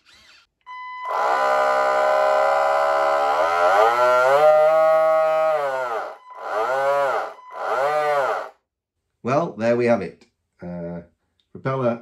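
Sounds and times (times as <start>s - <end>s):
electric boat motor whining: 1.0s - 8.5s.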